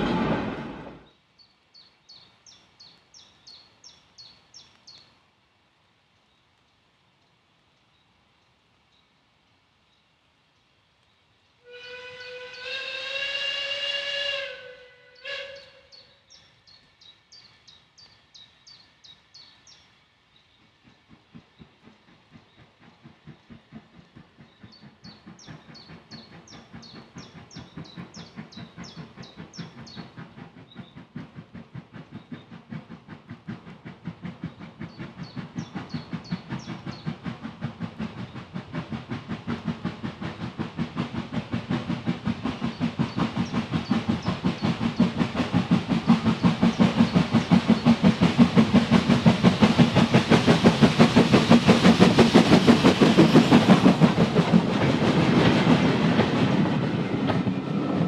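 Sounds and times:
locomotive exhaust beats: 0:00.0 - 0:01.1, 0:20.8 - 0:58.0
steam locomotive whistle: 0:11.6 - 0:16.1.

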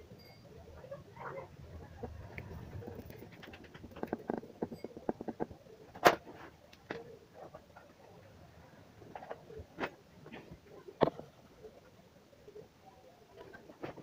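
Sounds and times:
small clicks and crackles: 0:01.9 - 0:08.3, 0:09.0 - 0:11.9, 0:13.3 - 0:14.0.

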